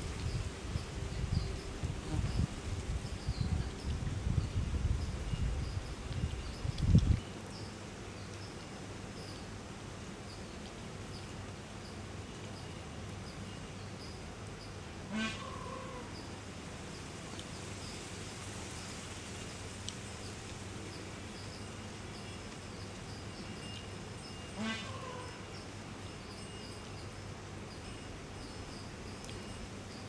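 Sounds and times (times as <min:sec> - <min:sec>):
louder animal call: 0:15.1 - 0:16.1.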